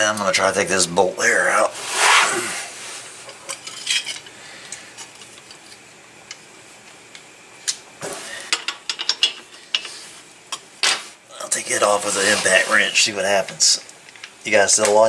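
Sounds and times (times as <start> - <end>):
metal tools clinking: 3.3 - 4.3, 8.5 - 10.0.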